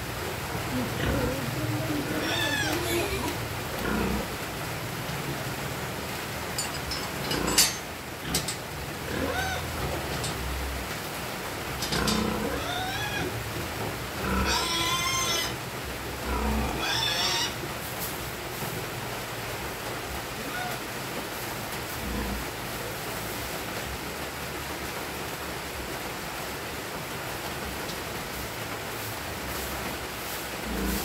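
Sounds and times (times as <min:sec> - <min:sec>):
piglets squealing: 0:01.0 - 0:03.4, 0:09.1 - 0:09.7, 0:12.4 - 0:13.4, 0:14.4 - 0:15.6, 0:16.7 - 0:17.6.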